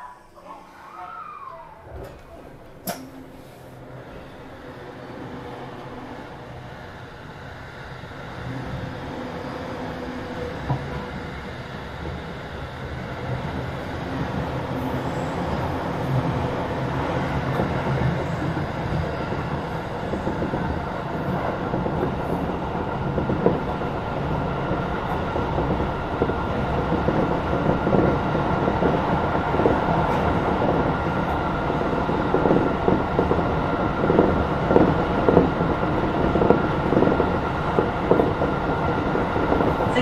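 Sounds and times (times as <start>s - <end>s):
train wheels rumbling on rail: 1.9s - 40.0s
rail-joint clicks: 2.0s - 3.6s.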